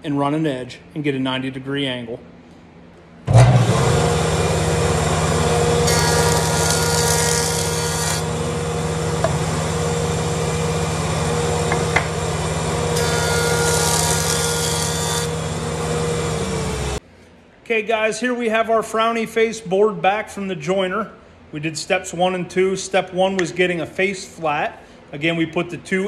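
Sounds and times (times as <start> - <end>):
jointer cutting wood board: 3.3 - 17.0
jointer running: 3.3 - 17.0.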